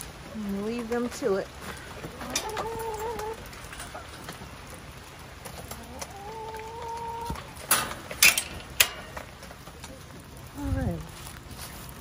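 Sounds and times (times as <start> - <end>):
wire gate clanking: 2.2 - 4.2, 7.4 - 9.5.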